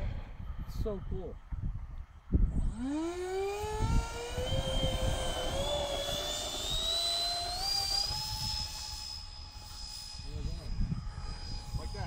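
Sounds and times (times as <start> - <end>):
electric ducted fans whining: 0.0 - 12.0.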